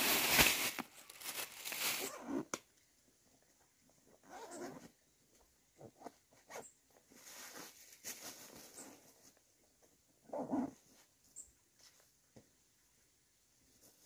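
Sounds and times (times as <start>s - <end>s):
backpack rustling: 0.0s - 2.4s
zipper sounds: 2.0s - 2.5s, 4.2s - 4.9s, 10.2s - 10.9s.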